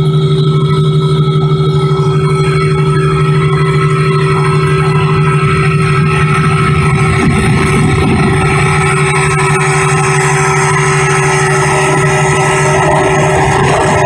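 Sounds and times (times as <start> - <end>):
boat engine droning: 0.0 - 14.0
wind noise: 0.0 - 14.0
water rushing: 2.8 - 14.0.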